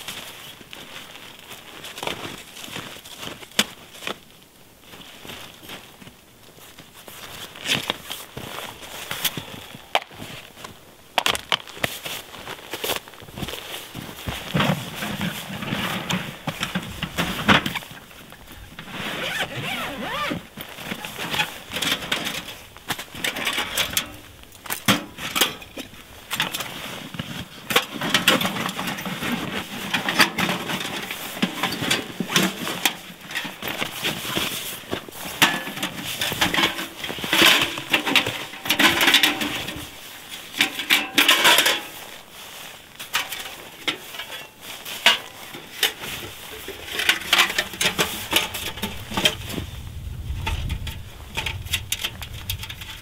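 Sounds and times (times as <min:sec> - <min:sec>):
fabric rustling: 0:11.7 - 0:23.2.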